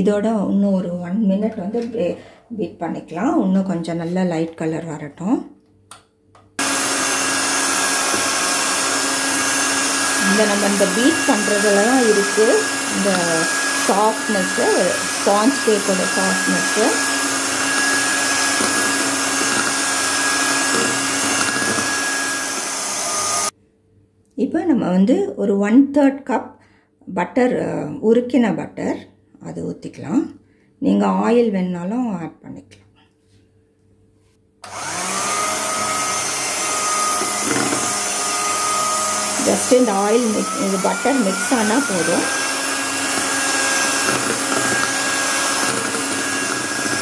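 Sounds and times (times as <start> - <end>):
electric mixer whisking batter: 6.6 - 23.5, 34.6 - 47.0.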